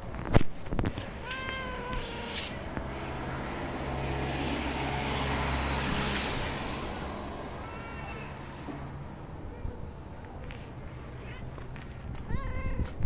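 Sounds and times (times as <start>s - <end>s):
low engine hum: 0.0s - 13.0s
cat meowing: 1.2s - 2.6s.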